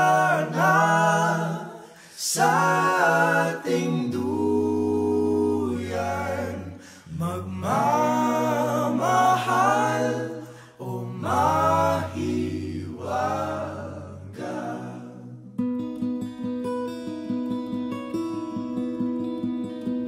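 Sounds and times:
voices singing in harmony: 0.0 - 15.6.

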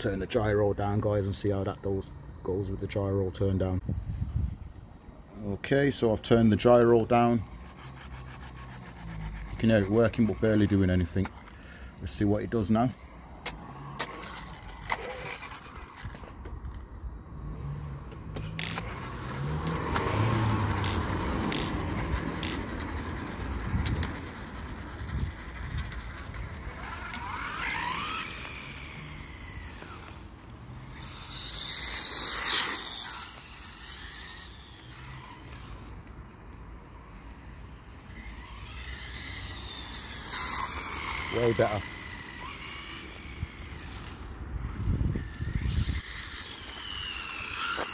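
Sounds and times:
electric motor whining: 13.2 - 36.1, 38.0 - 47.9.

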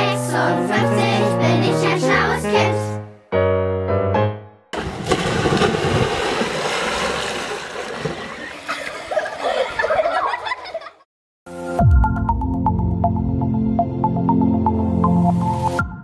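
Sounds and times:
water splashing: 4.8 - 10.1.

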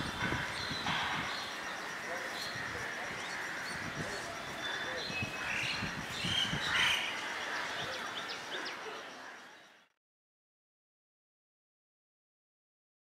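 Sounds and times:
birds chirping: 0.0 - 10.0
people's voices: 1.1 - 5.9.

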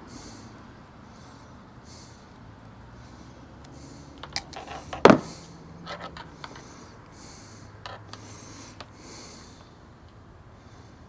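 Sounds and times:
breathing close to microphone: 0.0 - 11.0
knock: 5.0 - 5.3.

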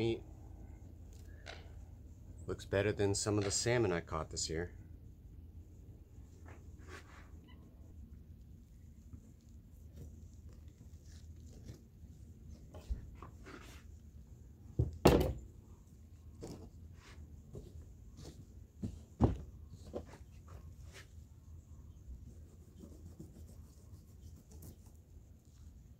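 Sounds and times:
thuds on table: 14.8 - 15.4.

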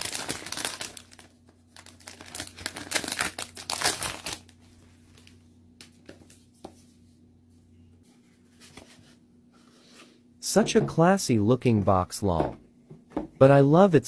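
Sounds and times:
plastic wrapping crinkling: 0.0 - 5.3.

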